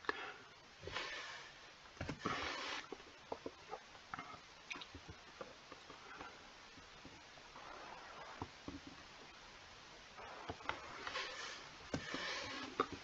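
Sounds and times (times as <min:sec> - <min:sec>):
breathy rushes of noise: 0:10.2 - 0:13.0.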